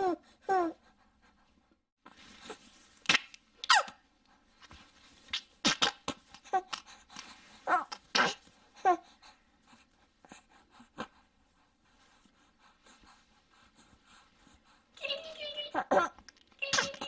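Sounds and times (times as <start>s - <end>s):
infant sharp breaths: 6.1s - 15.0s.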